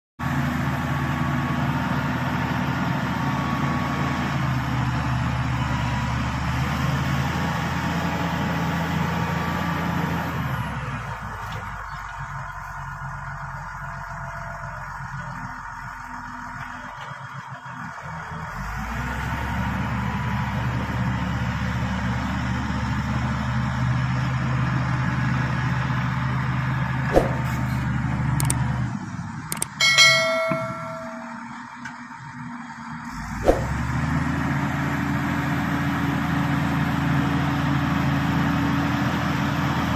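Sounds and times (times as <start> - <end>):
bulldozer diesel engine running: 0.2 - 39.9
sharp knock: 27.1 - 27.6.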